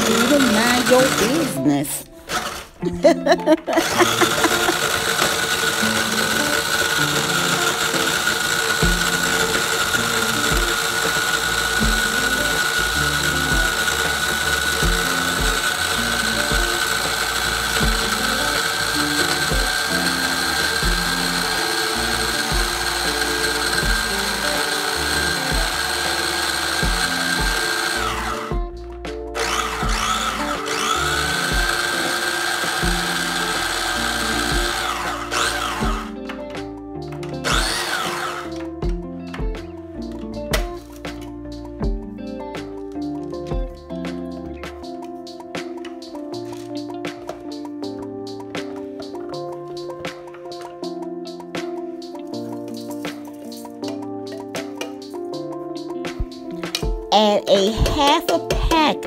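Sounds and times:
food chopper motor whining: 0.0 - 1.6, 2.2 - 36.5, 37.2 - 39.4
blades grinding cookies: 0.0 - 28.7, 29.4 - 36.4, 37.3 - 39.0.

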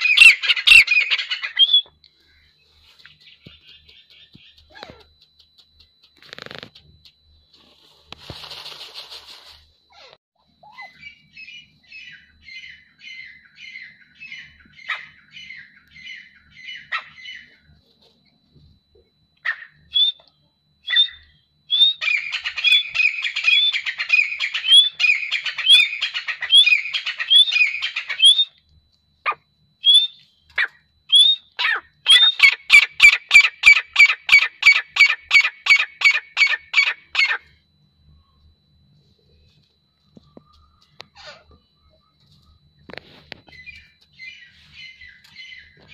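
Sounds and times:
francolin calling: 0.0 - 6.6, 9.9 - 17.7, 19.4 - 28.6, 29.2 - 37.6, 42.8 - 45.9.

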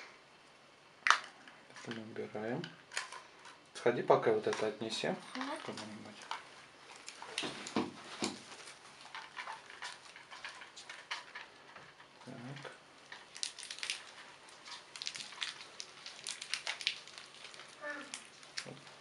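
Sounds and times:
plastic label crinkling: 4.4 - 19.0.

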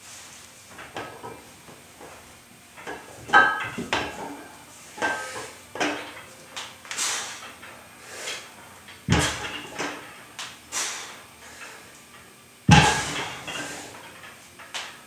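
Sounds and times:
weight plates clanking: 0.7 - 6.3, 6.9 - 10.3, 12.7 - 14.8.

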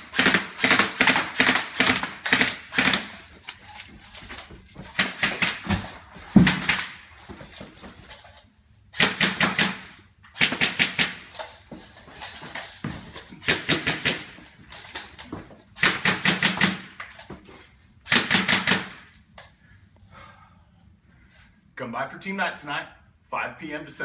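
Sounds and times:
airsoft gun firing: 0.0 - 3.2, 6.4 - 7.0, 9.0 - 11.3, 13.5 - 14.4, 15.8 - 17.0, 18.1 - 19.1.

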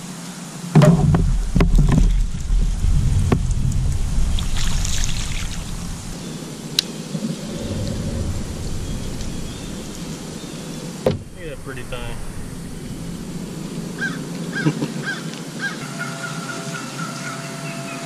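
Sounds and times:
water splashing: 0.0 - 14.6
steady low rumble: 0.7 - 14.6.

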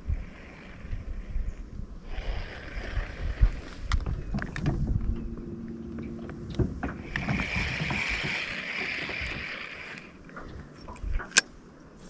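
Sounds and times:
steady hiss: 0.0 - 4.1
low rumble: 0.0 - 8.3
electric trolling motor humming: 0.0 - 10.8.

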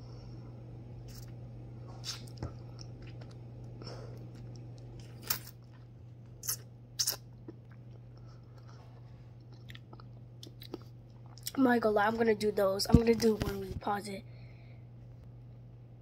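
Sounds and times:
steady low hum: 0.0 - 16.0
person chewing: 1.1 - 1.4, 2.0 - 11.6.

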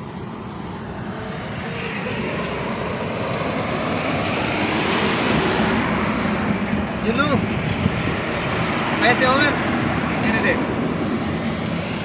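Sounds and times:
motor vehicle engine drone: 0.0 - 12.0.

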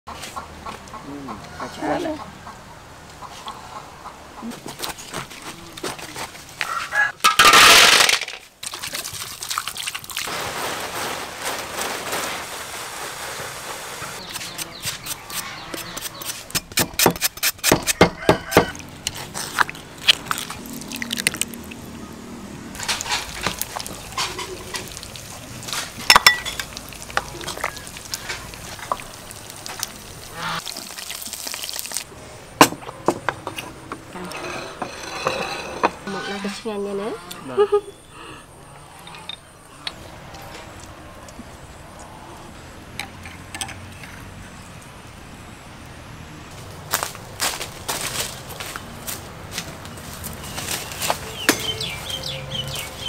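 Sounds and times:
cleaver chopping fruit: 14.2 - 18.7
pestle knocking and grinding in mortar: 14.2 - 20.5.

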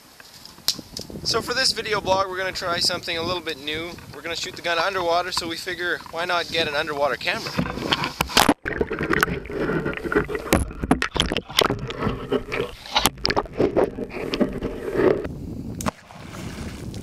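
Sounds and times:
water sloshing: 1.8 - 17.0
muffled knocks and scrapes underwater: 3.7 - 15.3.

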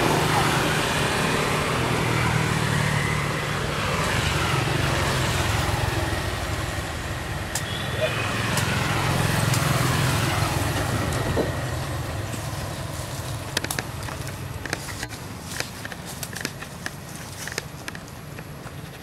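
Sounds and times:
vehicle engine hum: 0.0 - 19.0
sharp clicks and taps: 13.5 - 18.8.

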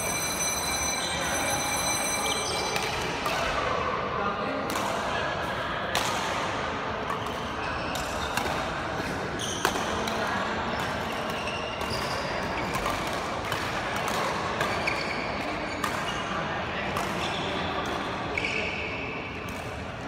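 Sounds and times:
rackets hitting shuttlecock: 7.0 - 10.2, 10.8 - 16.3, 16.9 - 18.1
shoes squeaking on court floor: 14.7 - 16.4.

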